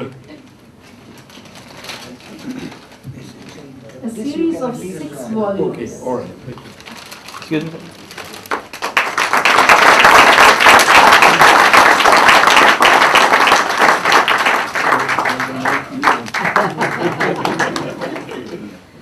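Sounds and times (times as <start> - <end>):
audience applauding: 8.2 - 18.7.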